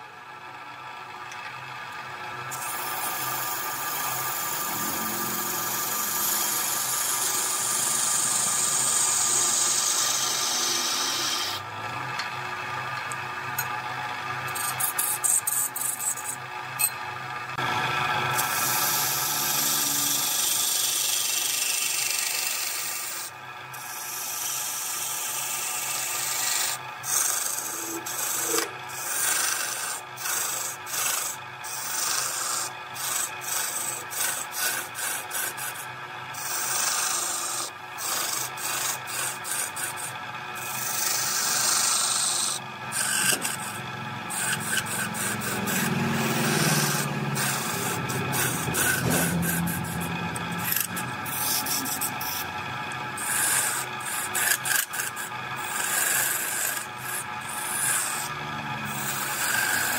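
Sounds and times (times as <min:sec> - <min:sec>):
lathe humming: 0:00.0 - 0:59.9
tool scraping wood on a lathe: 0:02.4 - 0:59.9.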